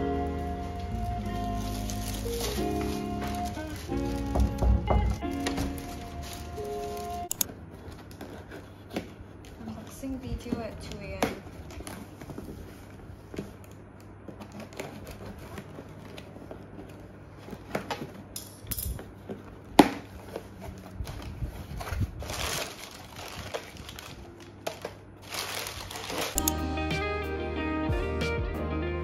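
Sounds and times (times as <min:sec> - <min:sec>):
crumpled paper rustling: 0:00.3 - 0:10.6, 0:11.4 - 0:18.3, 0:19.2 - 0:26.4
scissors cutting packing tape: 0:25.8 - 0:26.6.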